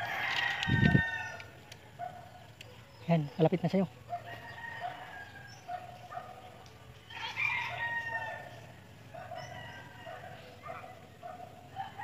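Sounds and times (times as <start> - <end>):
rooster crowing: 0.0 - 1.5, 4.1 - 6.0, 7.0 - 10.8, 11.6 - 12.0.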